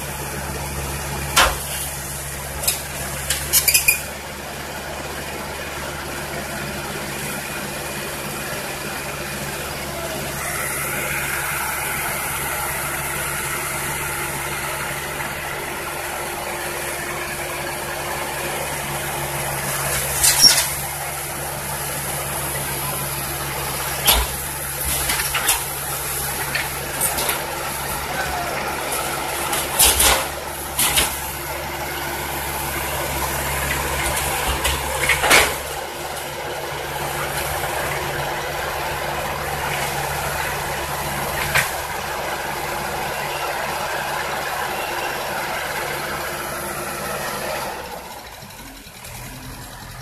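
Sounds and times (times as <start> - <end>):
excavator diesel engine running: 0.0 - 50.0
metal tracks clanking: 1.0 - 4.2, 18.7 - 49.4.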